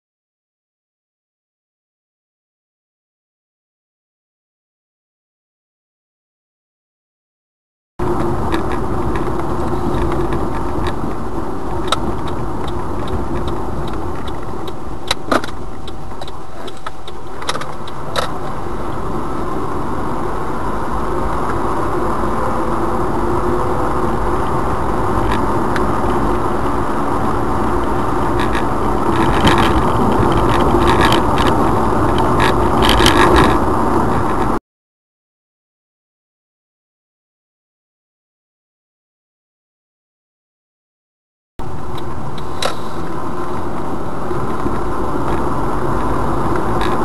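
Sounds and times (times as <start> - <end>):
road and engine noise inside car: 8.0 - 34.6, 41.6 - 47.0
sharp clicks and rattles: 8.2 - 19.0, 27.8 - 34.6.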